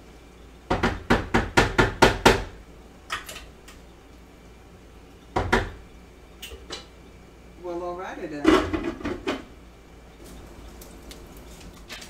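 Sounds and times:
wooden spatula knocking on a pan: 0.7 - 2.5.

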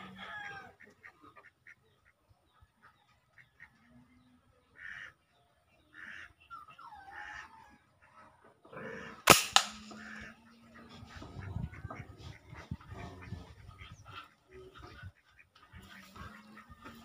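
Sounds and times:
birds calling: 4.8 - 17.0
soft crack: 9.3 - 10.2
toy gun shot: 9.3 - 10.2.

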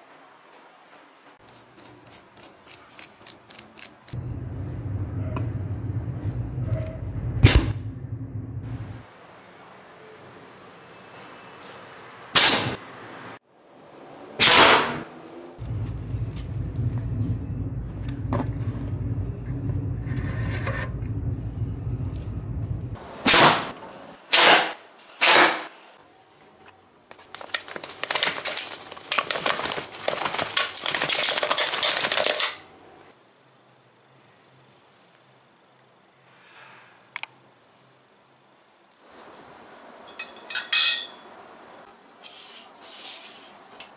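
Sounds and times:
steady low hum: 4.1 - 9.1, 15.6 - 23.2
blowgun shots sharp puffs: 14.4 - 15.0, 24.3 - 25.7.

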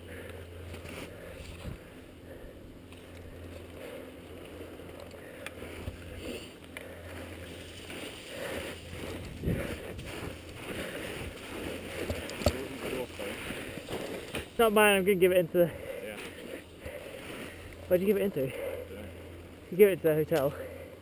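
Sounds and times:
skis crunching in snow: 5.6 - 14.8
wind rumble on camera: 8.8 - 11.4.

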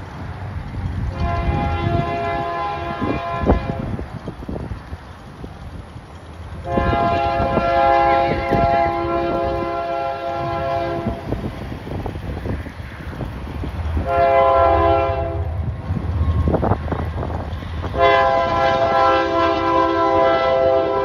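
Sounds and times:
locomotive air horn blasts: 1.1 - 4.0, 6.6 - 11.4, 14.0 - 15.6, 17.9 - 21.0.

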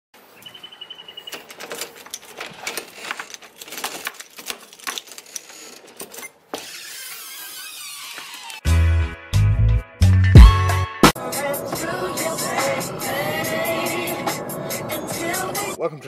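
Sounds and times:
keys jingling: 1.2 - 6.3
music: 8.6 - 15.8.

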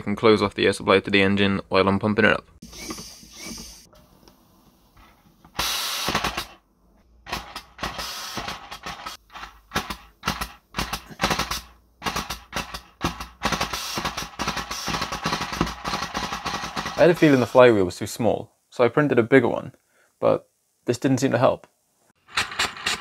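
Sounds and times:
compressed air hissing: 5.5 - 6.5, 7.8 - 9.4, 13.0 - 18.7.

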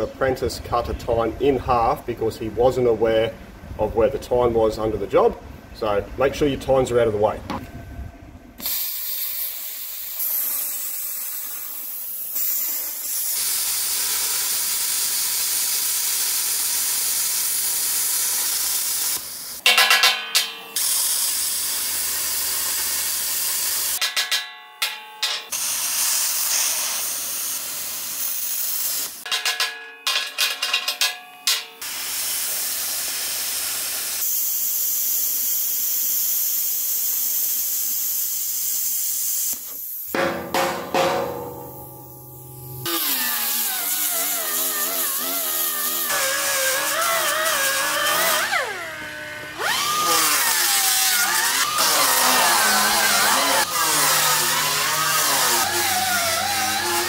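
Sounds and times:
plasma cutter hissing: 8.6 - 19.7, 20.3 - 24.0, 25.4 - 29.4, 31.5 - 40.2, 41.2 - 48.5
hammer and chisel striking metal: 19.6 - 21.4, 24.0 - 25.7, 29.2 - 31.9, 40.2 - 43.4.

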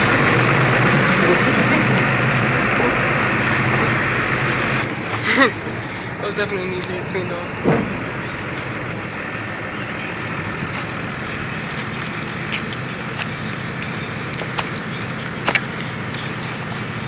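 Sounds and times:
engine running: 0.0 - 17.0.

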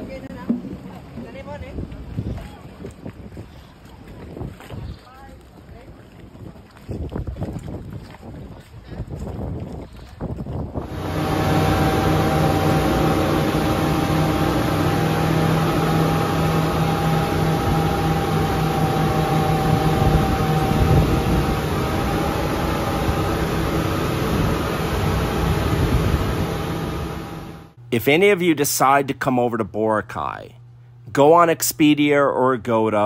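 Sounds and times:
water rushing along hull: 0.0 - 27.8
high steady tone: 10.8 - 27.8
boat engine drone: 10.8 - 27.9.

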